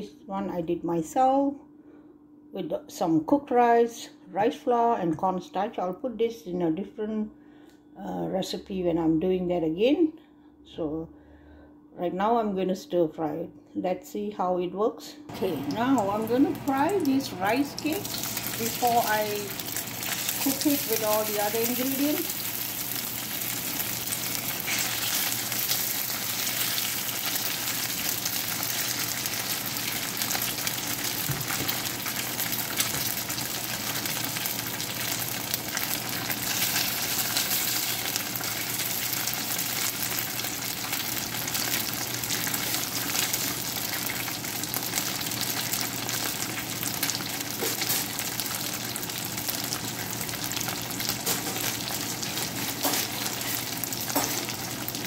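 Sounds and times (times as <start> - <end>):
food sizzling in oil: 15.3 - 55.0.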